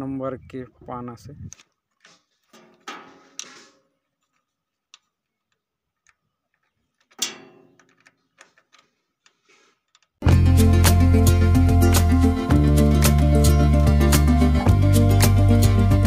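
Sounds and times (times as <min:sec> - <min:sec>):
loud music: 0:10.2 - 0:16.0.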